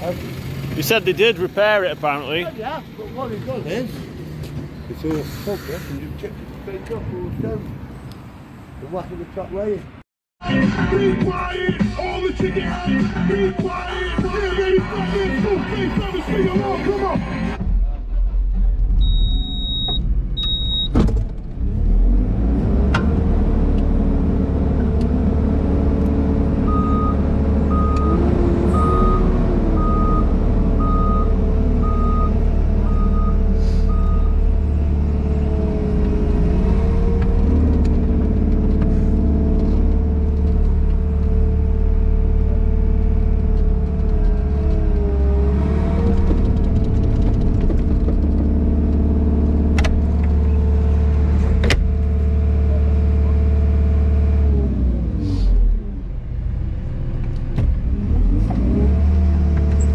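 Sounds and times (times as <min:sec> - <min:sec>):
short high beeps: 0:19.0 - 0:20.9
reversing alarm beeping: 0:19.0 - 0:21.0, 0:26.7 - 0:34.4.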